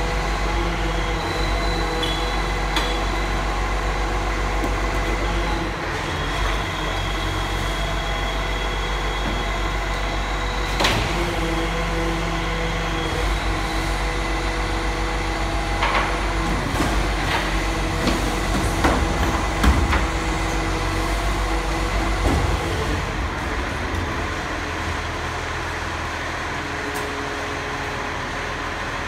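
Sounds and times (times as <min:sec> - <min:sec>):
garbage truck hum: 0:00.0 - 0:29.0.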